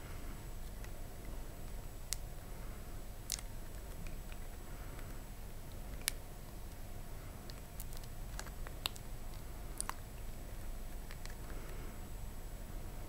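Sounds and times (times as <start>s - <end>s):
steady low hum: 0.0s - 13.0s
silicone toy clicks and squishes: 3.2s - 6.8s, 7.4s - 10.2s.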